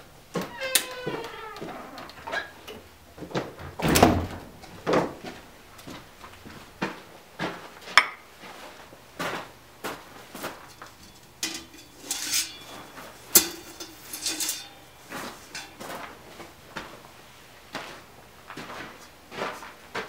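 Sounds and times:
metal blade clanking and knocking: 10.6 - 15.9
ringing metal scrapes: 10.6 - 15.9.

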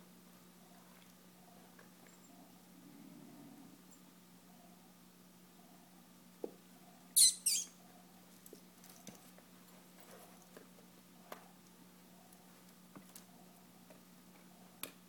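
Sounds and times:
high squeaks: 7.2 - 7.7.

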